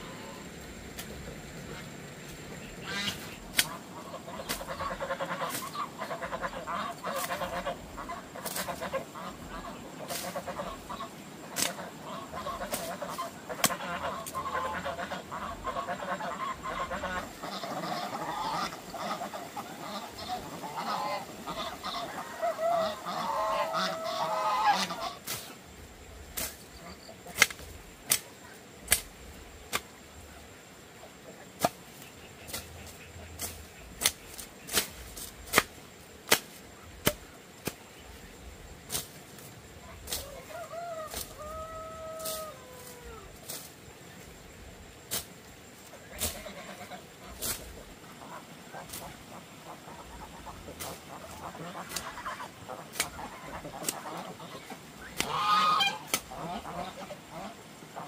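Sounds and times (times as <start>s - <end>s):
waterfowl honking: 1.6s - 25.4s, 39.8s - 43.2s, 46.1s - 58.0s.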